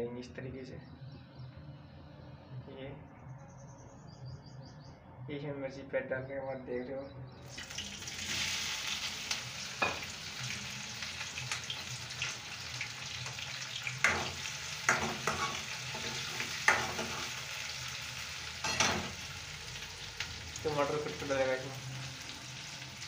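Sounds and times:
chillies sizzling in oil: 7.5 - 23.0
spoon scraping pan: 14.9 - 17.4.

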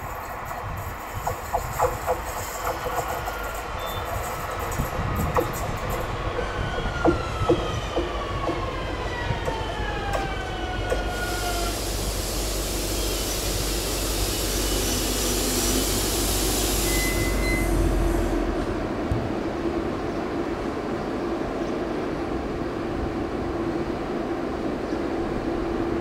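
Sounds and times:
train brake hiss: 0.0 - 4.8, 11.0 - 18.5
electric train braking whine: 9.5 - 18.8.

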